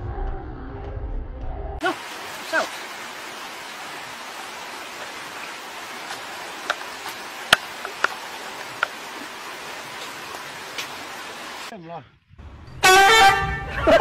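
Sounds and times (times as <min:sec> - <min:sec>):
running water hissing: 0:01.8 - 0:11.7.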